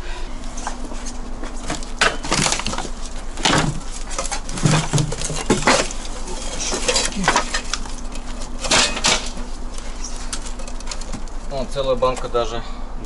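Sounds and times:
shovel scraping through rubble: 0:02.2 - 0:09.4.

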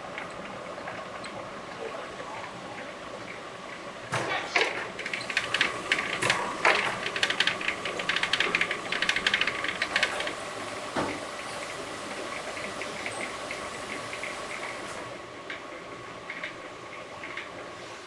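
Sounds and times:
machine running whine: 0:00.0 - 0:18.0
noodle machine clattering: 0:04.1 - 0:10.4.

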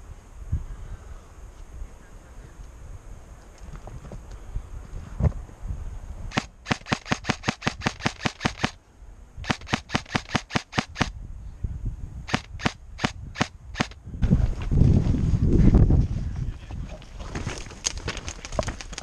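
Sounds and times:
airsoft gun shots: 0:06.3 - 0:08.8, 0:09.4 - 0:11.1, 0:12.3 - 0:14.0.

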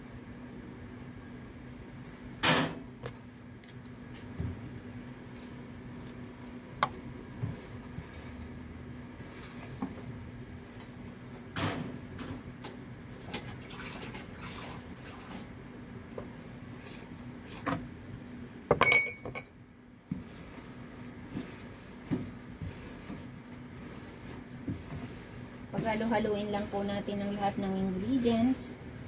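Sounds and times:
steady low hum: 0:00.0 - 0:13.2, 0:14.8 - 0:29.0
glass clattering down: 0:18.7 - 0:19.5.

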